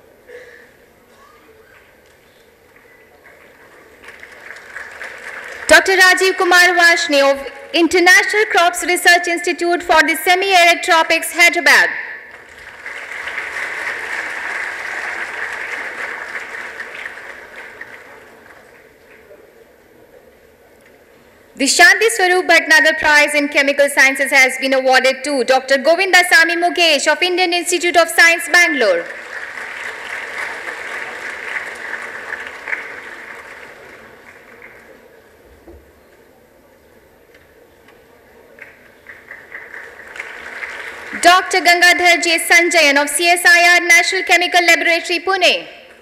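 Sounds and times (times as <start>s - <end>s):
audience applauding: 2.7s - 6.3s, 12.3s - 19.3s, 29.0s - 35.3s, 38.5s - 41.2s.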